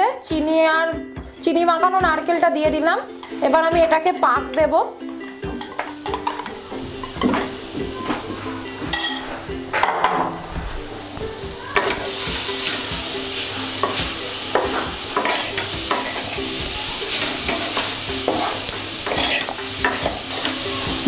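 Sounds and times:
steady sizzle: 0:05.0 - 0:21.0
wooden spatula scraping pan: 0:17.1 - 0:20.5.

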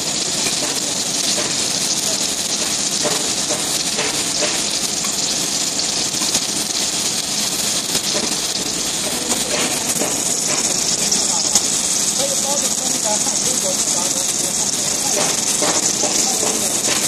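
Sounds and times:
welding hiss: 0:00.0 - 0:17.0.

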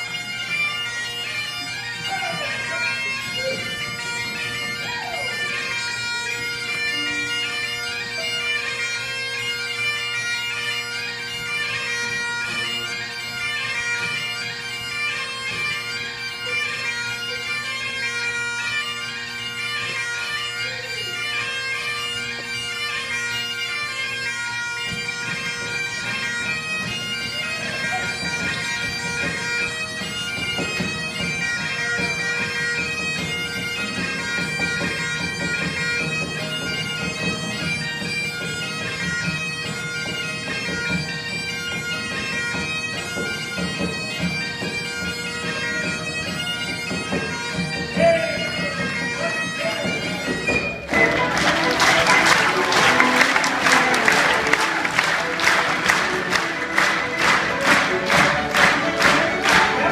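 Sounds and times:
bagpipe playing a tune: 0:00.0 - 0:59.9.

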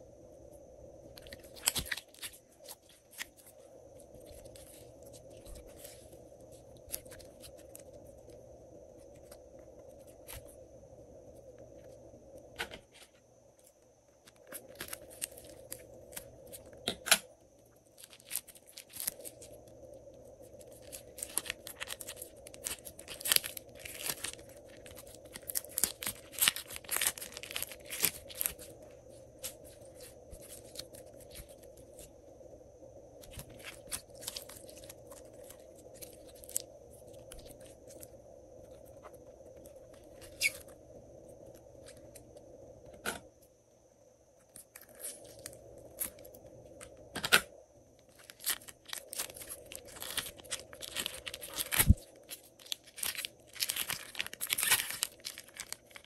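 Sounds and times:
plastic bag crinkling and tearing: 0:20.8 - 0:28.7, 0:48.1 - 0:56.0.

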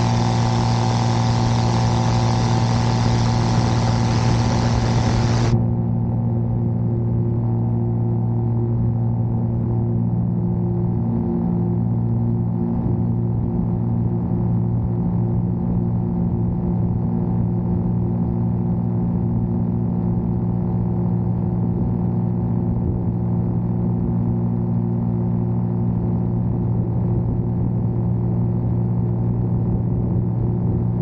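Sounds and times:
propeller engine droning: 0:00.0 - 0:05.6
rushing air: 0:00.0 - 0:05.6.

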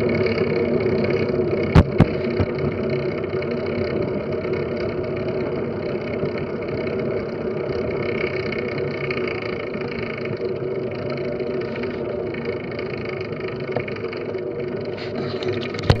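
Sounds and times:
bike tyres rolling on concrete: 0:00.0 - 0:16.0.

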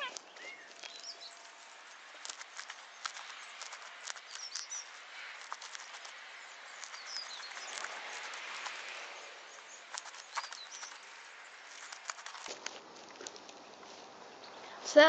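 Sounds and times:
bird chirps: 0:00.0 - 0:12.4.

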